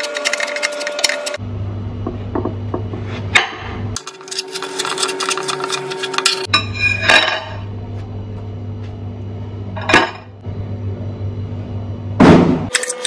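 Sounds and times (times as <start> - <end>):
steady low hum: 0.1 - 12.8.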